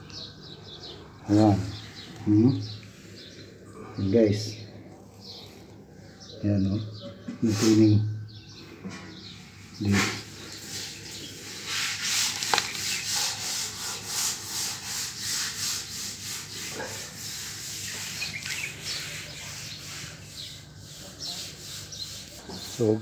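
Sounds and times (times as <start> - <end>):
hand scrubbing inside water tank: 9.6 - 23.0.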